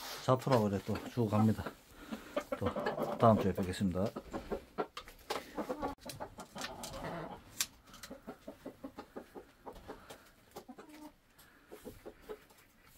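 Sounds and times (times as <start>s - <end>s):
hens clucking: 0.4s - 12.9s.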